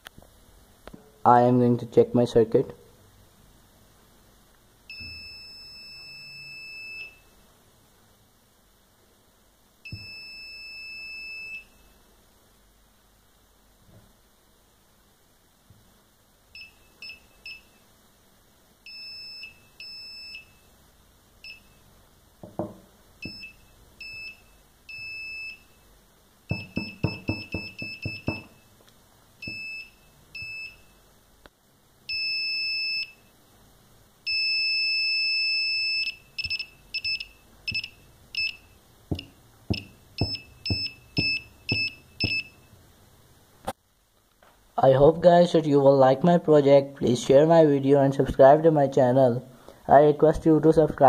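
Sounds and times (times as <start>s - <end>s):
buzzer beeping: 18.9s - 20.7s, 23.2s - 25.8s, 26.5s - 28.8s, 34.3s - 42.7s
soft knocks: 22.4s - 23.4s.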